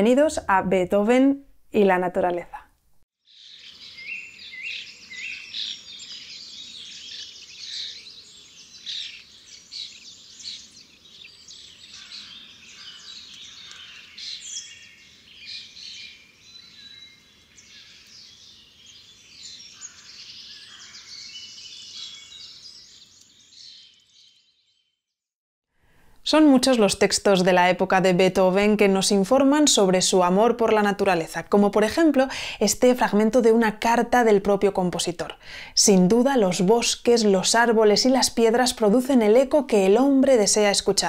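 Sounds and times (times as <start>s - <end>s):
songbirds singing and chirping: 3.2s - 25.0s.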